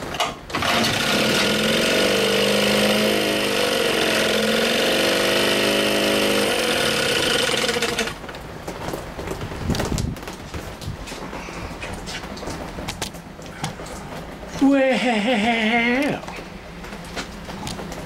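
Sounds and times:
outboard engine revving: 0:00.6 - 0:08.2.

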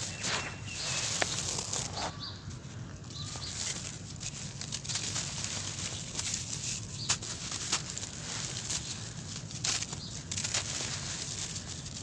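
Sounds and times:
cement chunks crunching in hands: 0:03.1 - 0:12.0.

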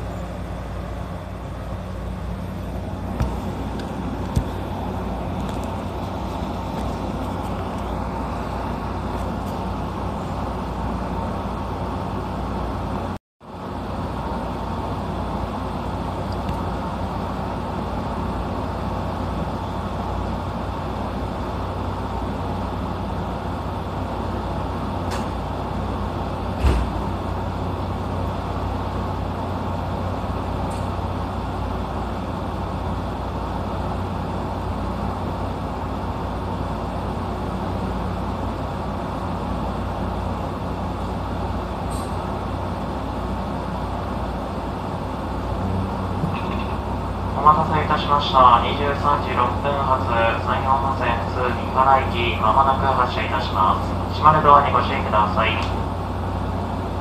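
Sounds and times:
electric train humming: 0:00.0 - 0:57.0
single thump: 0:26.6 - 0:27.0.

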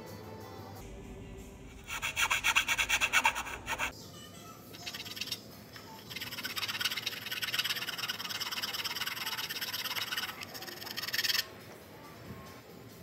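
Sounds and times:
needle file rasping: 0:01.8 - 0:03.9.

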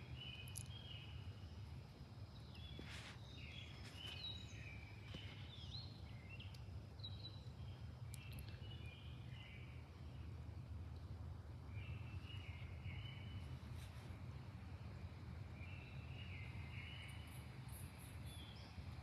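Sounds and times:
low background hum: 0:00.0 - 0:19.0
birds chirping and whistling: 0:02.5 - 0:09.8, 0:11.8 - 0:13.5, 0:15.6 - 0:18.8.

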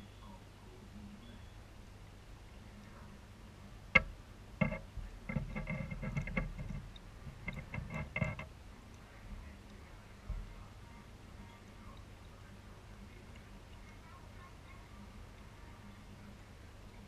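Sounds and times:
low aquarium hum: 0:00.0 - 0:17.0
clicks and taps underwater: 0:03.9 - 0:08.6.

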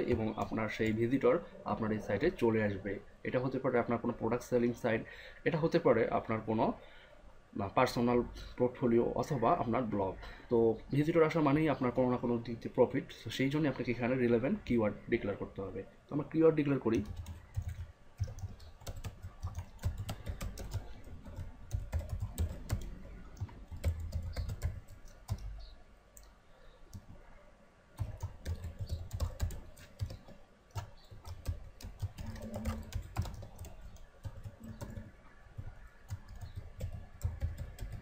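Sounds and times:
computer keyboard typing: 0:16.9 - 0:25.6, 0:28.0 - 0:38.0.

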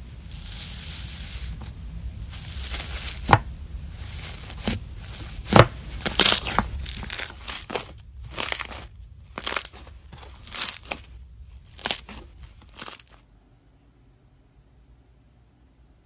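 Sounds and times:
slime squished between hands: 0:02.2 - 0:13.2.

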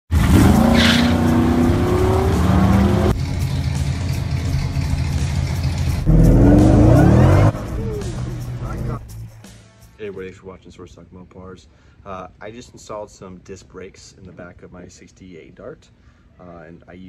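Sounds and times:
car engines accelerating: 0:00.1 - 0:09.0.

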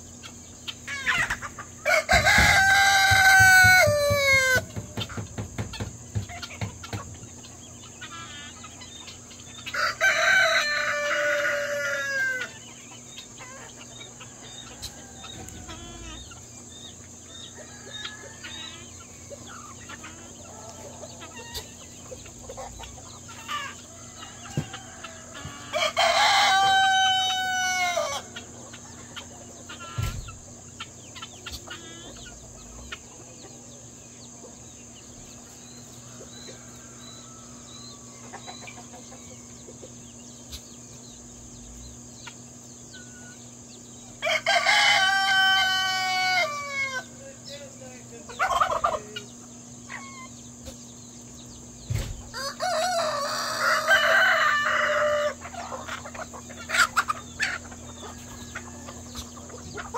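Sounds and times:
chickens clucking: 0:00.0 - 0:59.9
rooster crowing: 0:01.1 - 0:05.4, 0:09.6 - 0:12.6, 0:14.0 - 0:16.4, 0:17.3 - 0:21.7, 0:23.3 - 0:30.1, 0:36.0 - 0:39.7, 0:44.2 - 0:47.2, 0:52.3 - 0:59.9.

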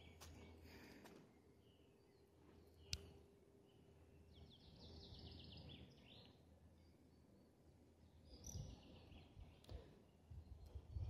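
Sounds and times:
faint songbird trill: 0:00.0 - 0:11.0.

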